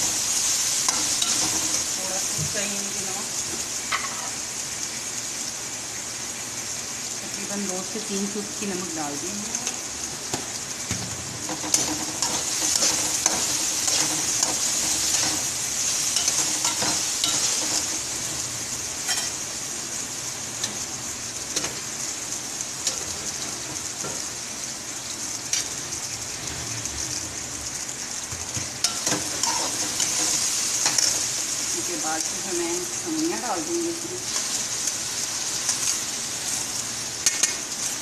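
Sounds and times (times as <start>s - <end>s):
food sizzling in oil: 0.0s - 38.0s
metal spatula scraping a pan: 11.5s - 19.4s, 28.8s - 31.2s.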